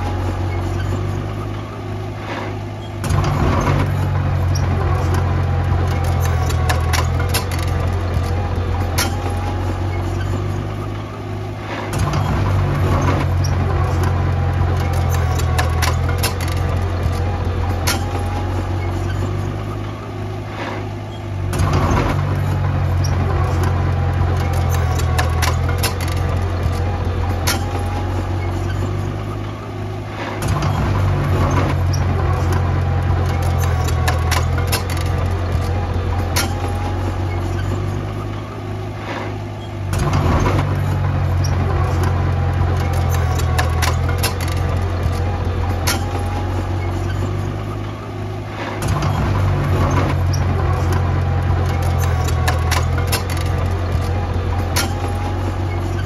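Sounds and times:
diesel engine running: 0.0 - 56.0
sharp metallic clanks: 2.2 - 11.0, 30.1 - 47.9, 48.5 - 56.0.

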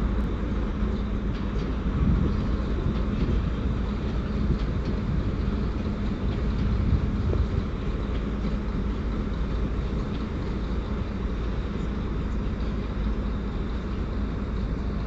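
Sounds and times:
train rumbling: 0.0 - 15.0.

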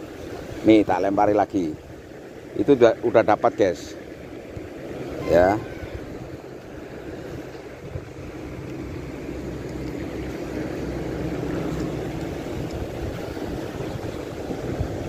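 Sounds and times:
sea: 0.0 - 15.0
wind buffeting microphone: 4.3 - 15.0.

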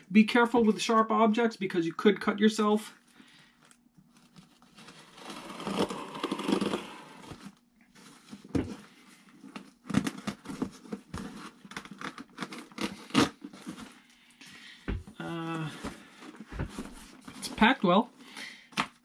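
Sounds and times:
scissors cutting packing tape: 5.2 - 7.3, 11.4 - 13.4.

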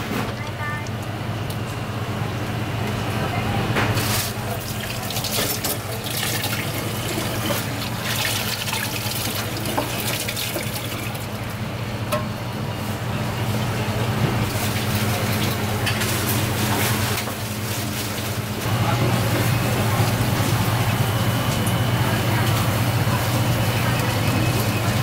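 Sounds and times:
running water: 4.0 - 11.5.

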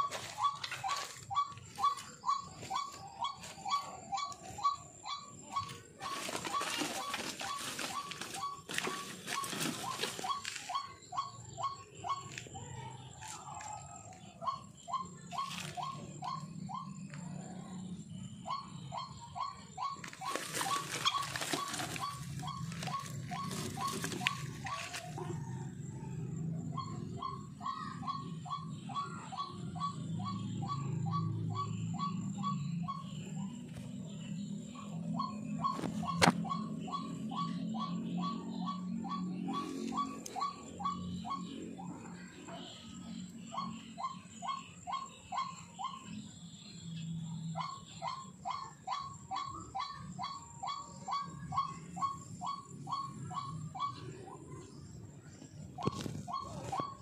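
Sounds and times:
waterhen calling: 19.0 - 25.2.

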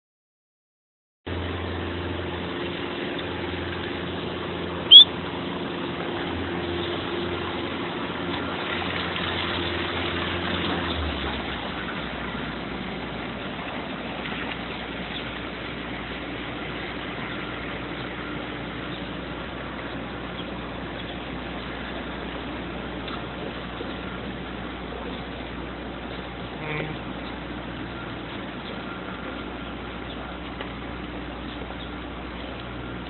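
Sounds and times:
low engine hum: 1.3 - 33.0
rain: 1.3 - 33.0
street traffic: 1.3 - 33.0
sharp high-pitched squeak: 4.9 - 5.1.

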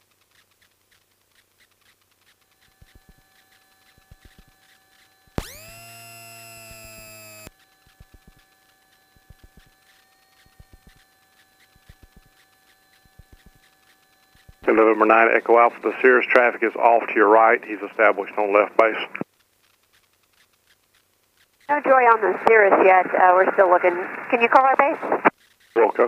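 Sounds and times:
radio crackle and clicks: 0.0 - 26.0
faint steady tone: 1.4 - 24.5
buzzy electronic tone: 2.3 - 18.8.

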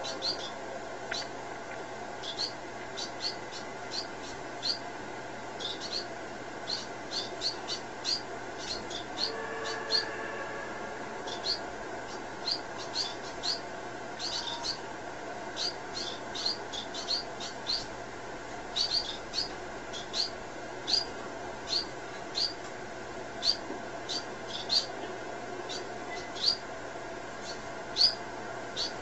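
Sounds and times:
owl chirping: 0.0 - 1.4, 2.2 - 4.9, 5.6 - 10.1, 11.2 - 14.9, 15.5 - 17.9, 18.7 - 22.6, 23.4 - 25.0, 25.7 - 26.6, 27.4 - 29.0.

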